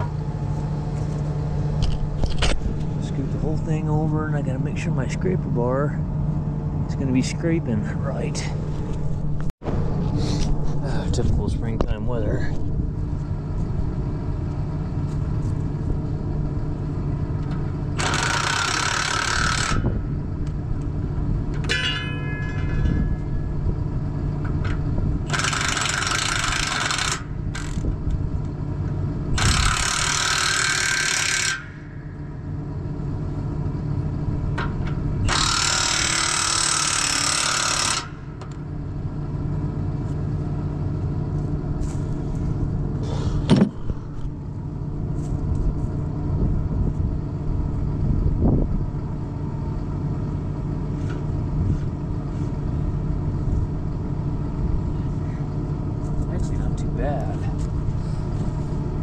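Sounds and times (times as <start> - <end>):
tractor diesel engine idling: 0.0 - 18.4, 31.7 - 35.3, 38.2 - 59.0
impact wrench bursts: 18.0 - 19.9, 25.3 - 27.8, 29.4 - 31.9, 35.3 - 38.2.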